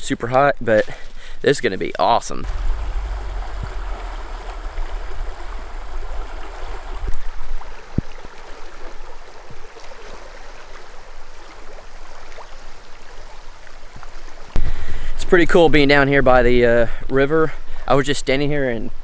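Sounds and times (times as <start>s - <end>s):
low rumble: 2.4s - 7.4s
river water rushing: 2.4s - 14.6s.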